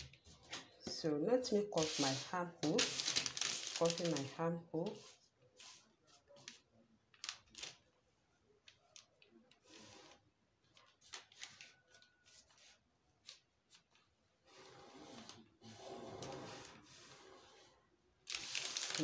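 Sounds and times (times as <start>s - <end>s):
pen scraping along paper: 9.6s - 10.2s, 14.4s - 18.6s.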